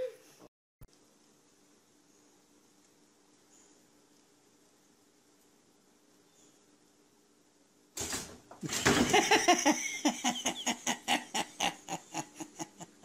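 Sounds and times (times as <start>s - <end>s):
person laughing: 8.6s - 13.0s.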